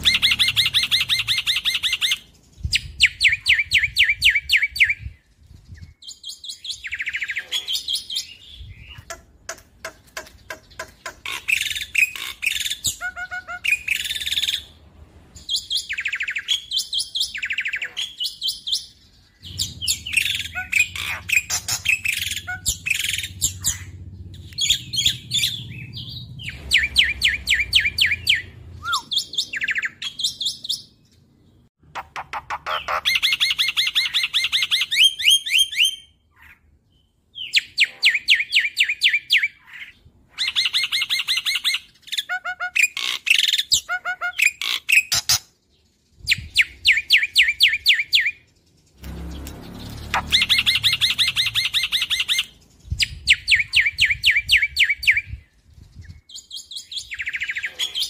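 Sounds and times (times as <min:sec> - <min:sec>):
bird singing rattling notes: 0:00.0 - 0:14.8, 0:15.4 - 0:35.9, 0:44.4 - 0:57.6.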